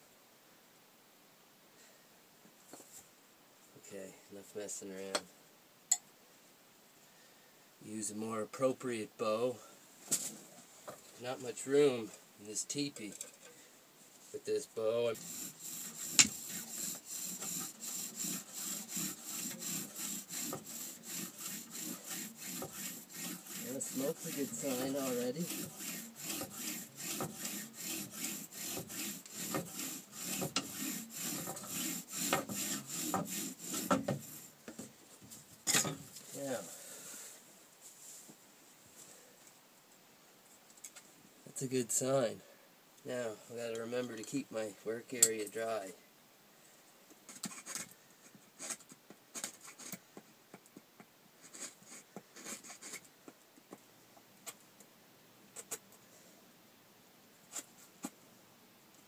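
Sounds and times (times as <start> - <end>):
bow drill spindle grinding wood: 15.0 - 34.5
scratching wooden parts: 15.1 - 34.9, 47.3 - 53.8.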